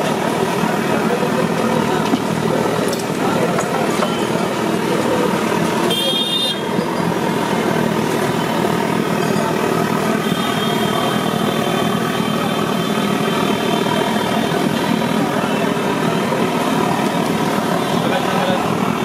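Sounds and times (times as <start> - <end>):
street traffic roaring: 0.0 - 19.0
vehicle horn toot: 5.8 - 6.8, 10.2 - 12.7.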